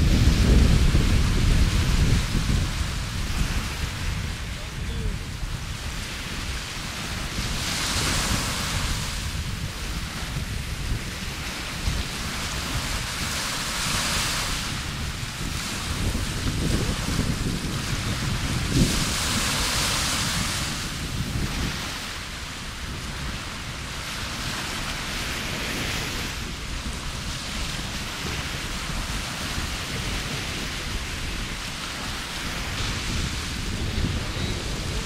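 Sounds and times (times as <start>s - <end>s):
sea waves washing on beach: 0.0s - 35.0s
wind buffeting microphone: 0.0s - 35.0s.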